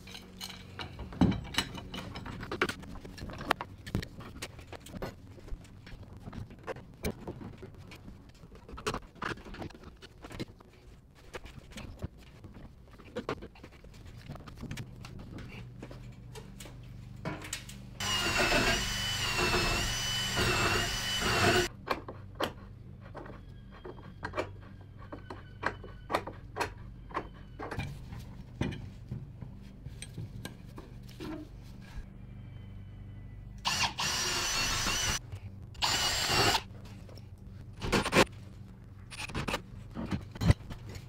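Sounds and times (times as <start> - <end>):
cordless drill whining: 18.0 - 21.7, 33.6 - 35.2, 35.8 - 36.6.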